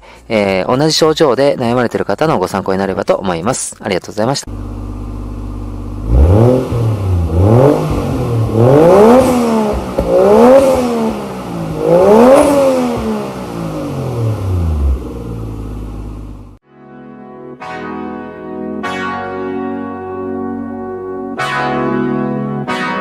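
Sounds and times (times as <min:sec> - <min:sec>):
scooter engine revving: 0:04.5 - 0:16.6.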